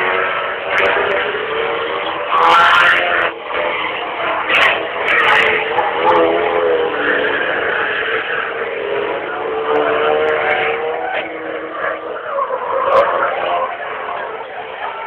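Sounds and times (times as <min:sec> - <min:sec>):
racing engines revving: 0:00.0 - 0:15.0.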